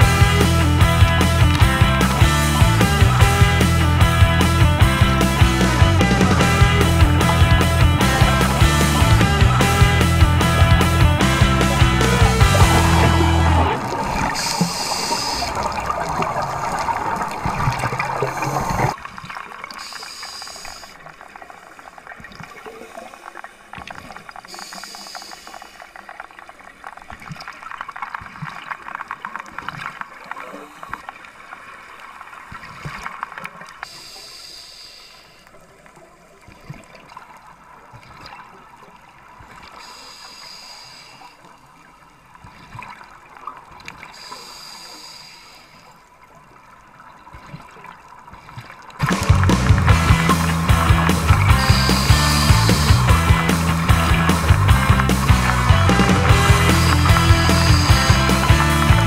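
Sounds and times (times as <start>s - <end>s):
backing music: 0.0s - 15.0s, 49.0s - 59.0s
regulator air bubbling underwater: 0.0s - 59.0s.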